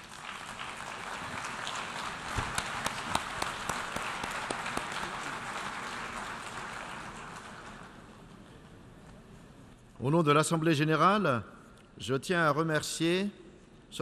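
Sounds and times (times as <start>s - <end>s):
sharp nearby claps: 0.0s - 6.9s
hall audience applauding: 0.0s - 8.2s.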